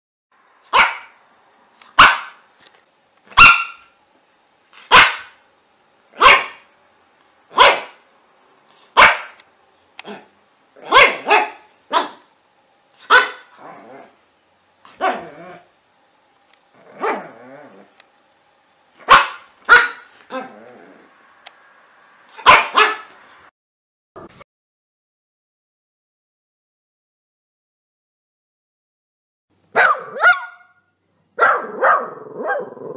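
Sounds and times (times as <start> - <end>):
dog barking: 0.7 - 1.2, 2.0 - 2.4, 3.4 - 3.9, 4.9 - 5.4, 6.2 - 6.7, 7.5 - 8.0, 9.0 - 9.4, 10.0 - 12.3, 13.0 - 13.6, 15.0 - 15.4, 17.0 - 17.4, 19.0 - 20.6, 22.4 - 23.2, 29.7 - 30.8, 31.4 - 32.9
dog growling: 13.5 - 14.2, 15.0 - 15.7, 16.7 - 18.0, 20.3 - 21.2, 31.6 - 32.9.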